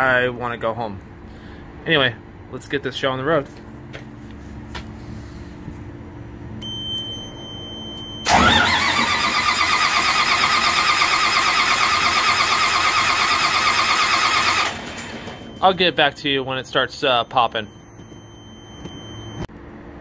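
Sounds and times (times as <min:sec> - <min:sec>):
steady high beep: 0:06.6 - 0:08.3, 0:15.0 - 0:19.5
diesel engine cranking: 0:08.2 - 0:16.1.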